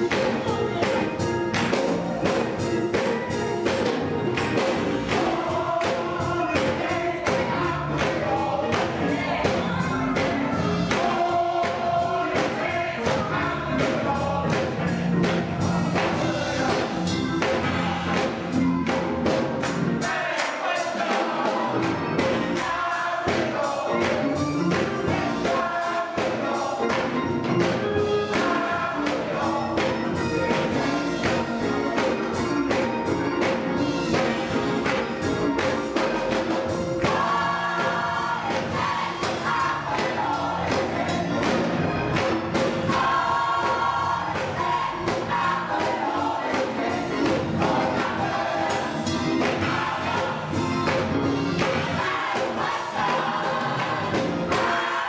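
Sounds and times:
gospel choir singing: 0:00.0 - 0:55.0
keyboard accompaniment: 0:00.0 - 0:55.0.

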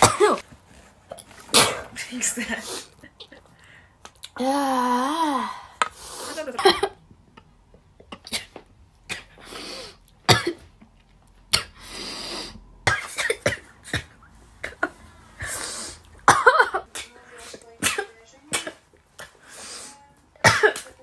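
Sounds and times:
breathy in-breaths: 0:03.6 - 0:06.3.

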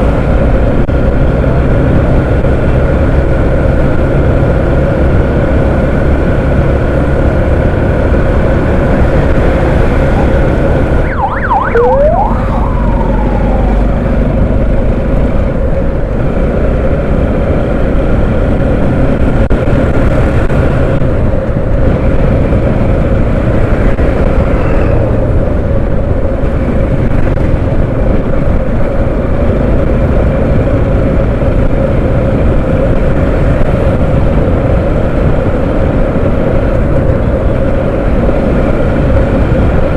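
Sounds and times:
motorcycle engine drone: 0:00.0 - 0:39.9
wind rushing over microphone: 0:00.0 - 0:39.9
wavering siren-like tone: 0:10.0 - 0:14.4.

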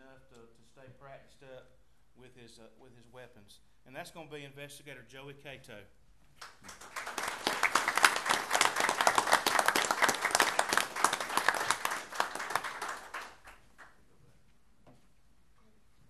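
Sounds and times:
audience applauding: 0:06.4 - 0:14.0.

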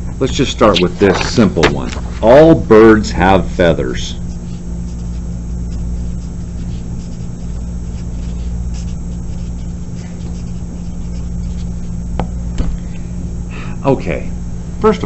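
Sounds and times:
marker squeaking on paper: 0:00.6 - 0:01.4, 0:04.2 - 0:12.0.

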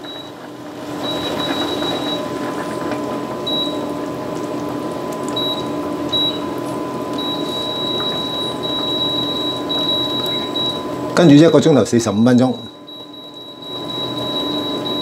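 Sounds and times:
soup bubbling: 0:00.0 - 0:11.2
induction hob electrical hum: 0:00.0 - 0:15.0.

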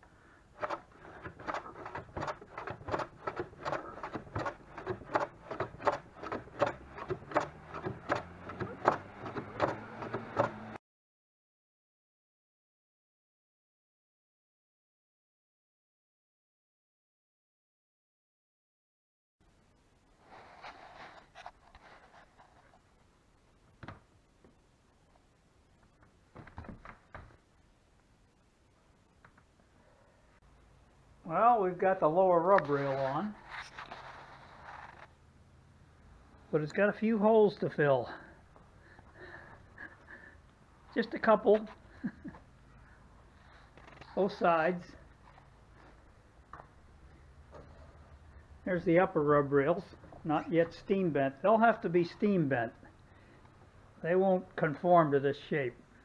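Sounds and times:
hand plane shaving wood: 0:00.6 - 0:10.8.

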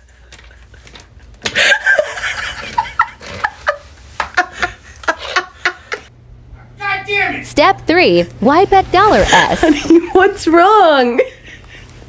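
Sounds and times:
person laughing hard: 0:00.0 - 0:06.1.

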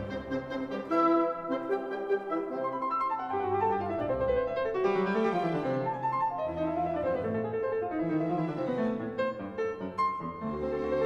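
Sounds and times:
classical piano music: 0:00.0 - 0:11.0.

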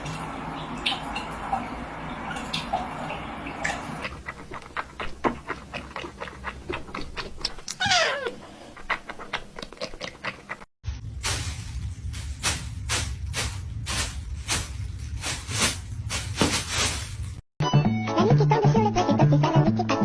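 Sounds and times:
cat meowing: 0:07.8 - 0:08.4.

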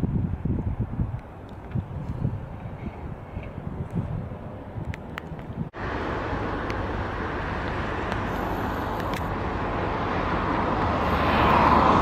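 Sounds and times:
road traffic noise: 0:00.0 - 0:12.0
vehicle approaching: 0:04.3 - 0:12.0.

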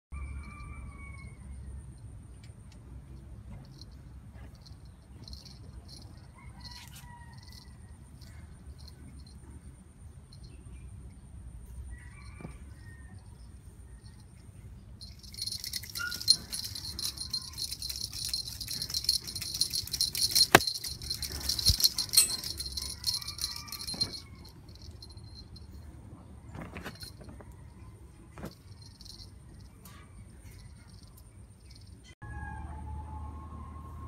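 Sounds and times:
cat toy jingling: 0:03.5 - 0:09.4, 0:15.0 - 0:25.8, 0:28.4 - 0:29.8.

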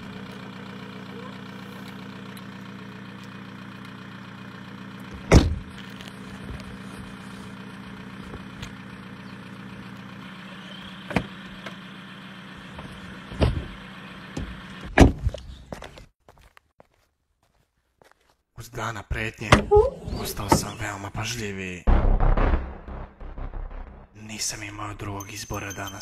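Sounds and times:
car engine idling: 0:00.0 - 0:14.8
car door slamming: 0:05.3 - 0:05.6
knocks and thud: 0:21.9 - 0:24.2.

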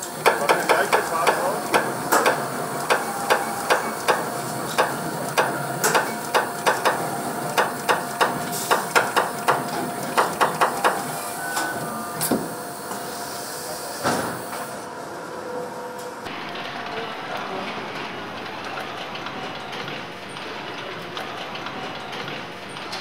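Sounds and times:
marking machine tapping metal: 0:00.2 - 0:07.0, 0:07.6 - 0:11.1.

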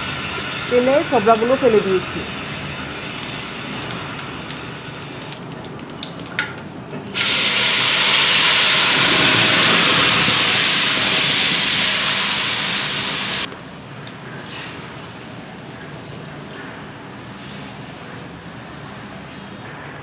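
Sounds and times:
spices sizzling in hot oil: 0:00.0 - 0:05.7, 0:07.2 - 0:13.5
pulp hissing in hot oil: 0:07.2 - 0:13.5.

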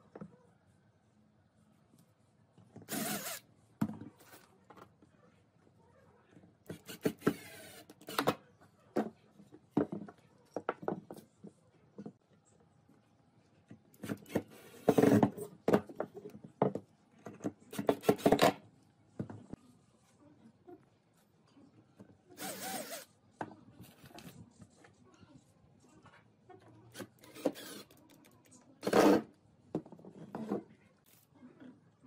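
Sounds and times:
cordless drill driving screws: 0:02.9 - 0:03.4, 0:22.4 - 0:23.0, 0:27.0 - 0:27.8.

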